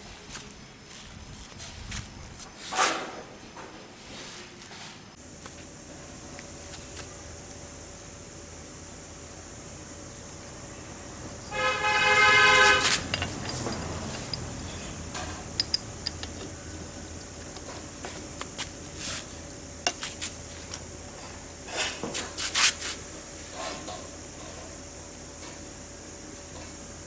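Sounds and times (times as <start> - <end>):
horn-like tone: 11.5 - 13.0
light metal clicks and taps: 15.2 - 17.7.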